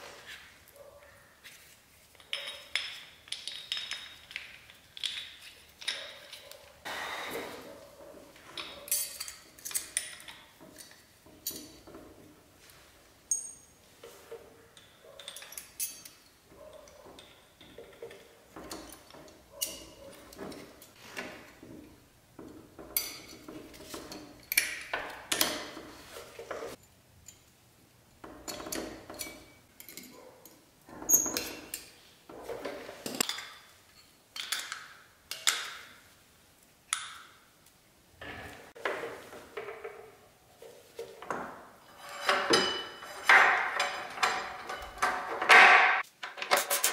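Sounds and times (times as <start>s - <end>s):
metallic clicks and clinks of tools: 2.1s - 6.6s, 8.6s - 12.1s, 13.3s - 13.8s, 14.8s - 21.0s, 22.4s - 25.8s, 26.7s - 27.6s, 28.2s - 32.0s, 33.1s - 35.9s, 42.0s - 45.4s, 46.2s - 46.9s.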